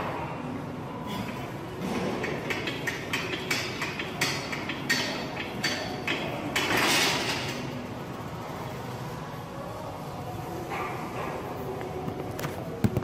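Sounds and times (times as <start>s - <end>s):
weight plates clanking: 1.3s - 7.7s.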